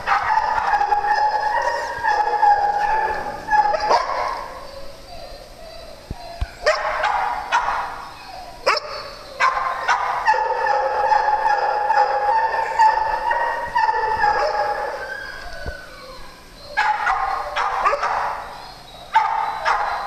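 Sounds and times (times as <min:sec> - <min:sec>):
dog barking: 0:00.0 - 0:05.4, 0:06.6 - 0:08.0, 0:08.6 - 0:15.1, 0:16.7 - 0:18.5, 0:19.1 - 0:20.0
dog whining: 0:00.0 - 0:10.9, 0:11.5 - 0:20.0.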